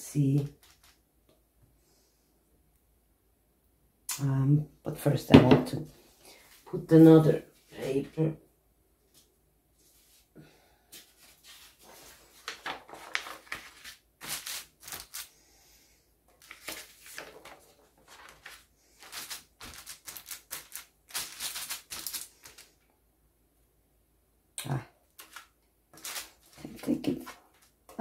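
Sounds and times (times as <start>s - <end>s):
onion skin and paper crackling: 11.4s - 15.4s, 16.4s - 22.7s, 25.2s - 27.8s.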